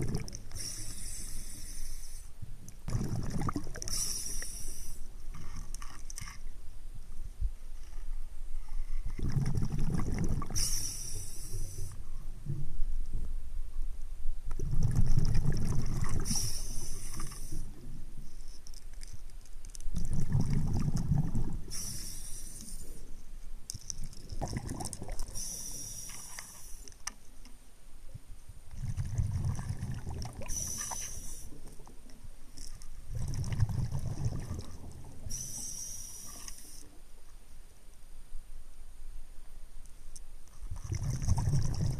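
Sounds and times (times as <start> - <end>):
exhaled bubbles rumbling: 0.0 - 0.8, 2.8 - 4.1, 9.0 - 10.8, 14.5 - 18.0, 19.9 - 21.8, 23.9 - 25.6, 28.7 - 31.0, 32.8 - 35.3, 40.6 - 41.9
regulator hiss on inhale: 0.5 - 2.5, 3.8 - 5.7, 10.4 - 12.4, 16.2 - 18.6, 21.6 - 23.2, 25.2 - 27.0, 30.4 - 31.8, 35.1 - 37.0.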